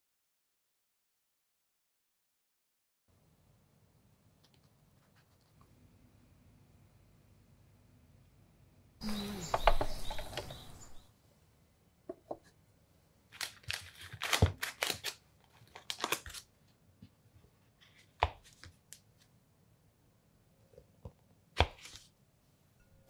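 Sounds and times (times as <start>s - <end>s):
foil wrapper crinkling and tearing: 13.3s - 16.5s.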